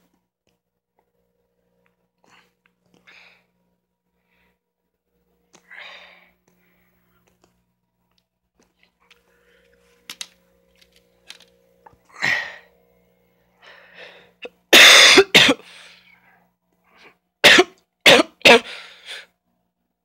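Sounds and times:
person coughing: 14.4 - 15.7, 17.4 - 18.8.

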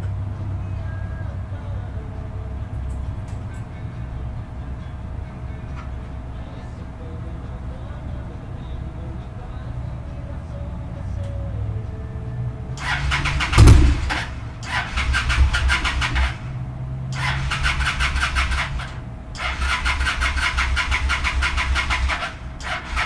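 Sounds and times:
motorcycle starter cranking engine: 12.8 - 23.0
loud pop: 13.5 - 14.3.

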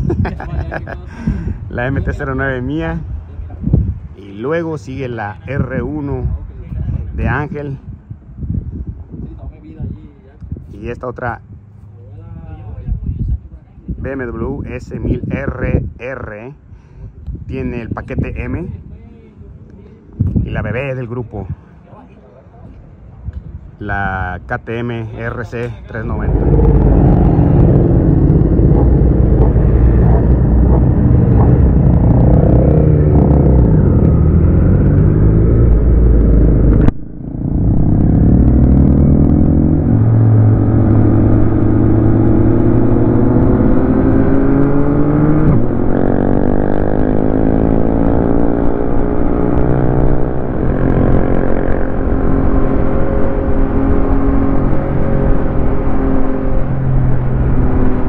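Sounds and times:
motorcycle engine accelerating: 25.8 - 58.0.

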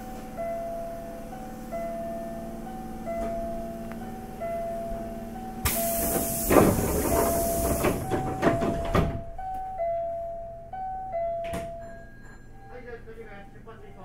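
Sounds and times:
train doors thudding shut: 2.9 - 3.8, 4.7 - 9.7, 11.4 - 12.0
hiss of released air: 5.6 - 8.0.

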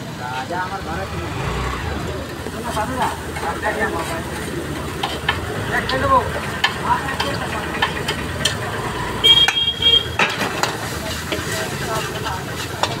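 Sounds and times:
noodles sizzling: 1.9 - 13.0
metal spatula clanking on wok: 4.8 - 8.7, 9.3 - 13.0.

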